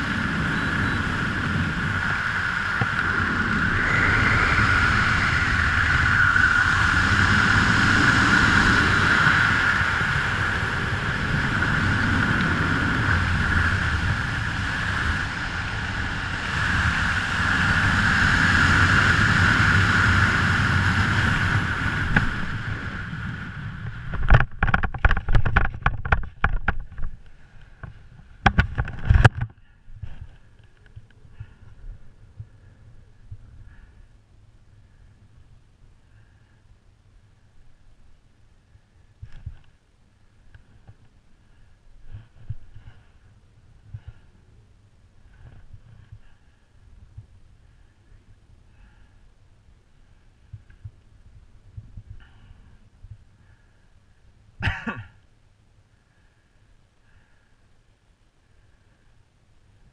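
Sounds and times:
wind rushing over microphone: 0:00.0 - 0:34.1, 0:40.5 - 0:49.1.

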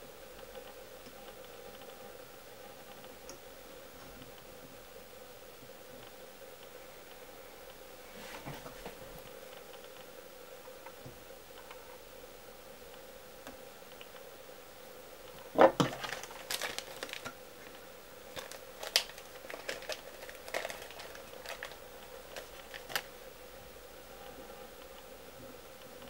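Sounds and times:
faint steady hum: 0:00.0 - 0:26.0
packaging crinkling and rustling: 0:15.6 - 0:23.2.

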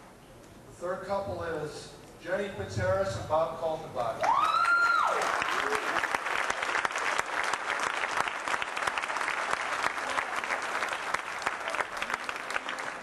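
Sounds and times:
crowd applauding: 0:04.2 - 0:13.0.

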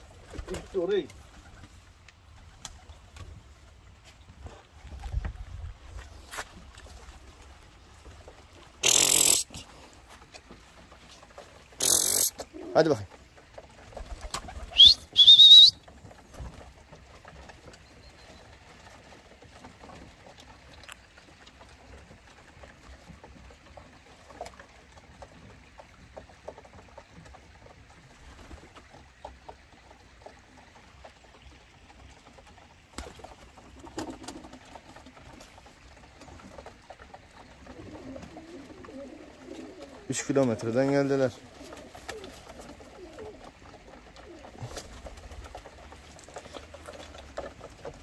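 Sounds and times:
pigeons tapping on wooden boards: 0:00.0 - 0:48.0
pigeon cooing: 0:08.8 - 0:09.7, 0:11.7 - 0:13.0, 0:14.0 - 0:15.9, 0:36.1 - 0:48.0.

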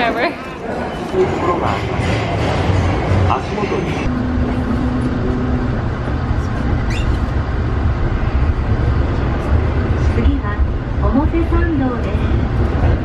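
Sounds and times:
subway train rumbling: 0:00.0 - 0:13.0
steady hum: 0:04.0 - 0:13.0
train squeal: 0:06.8 - 0:07.3.

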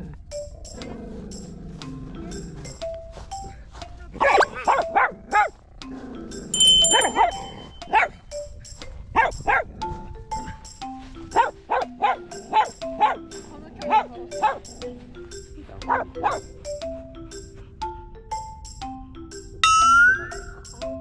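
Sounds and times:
background music with light beat: 0:00.0 - 0:21.0
small dog barking: 0:04.2 - 0:05.6, 0:06.8 - 0:08.2, 0:09.2 - 0:09.8, 0:11.3 - 0:14.7, 0:15.9 - 0:16.5.

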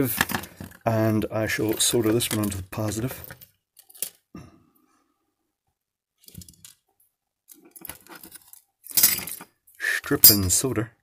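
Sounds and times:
wires clicking and rustling: 0:00.0 - 0:04.3, 0:06.2 - 0:09.6.

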